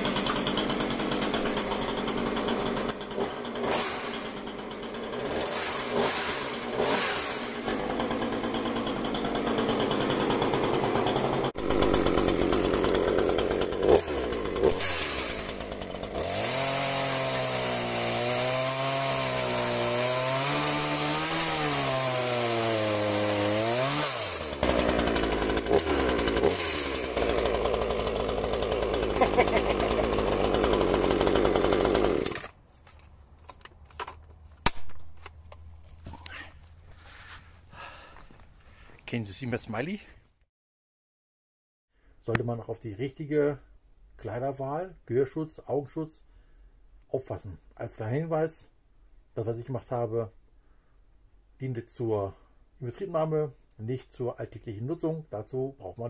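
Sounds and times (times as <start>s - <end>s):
chainsaw cutting into a log: 0.0s - 32.6s.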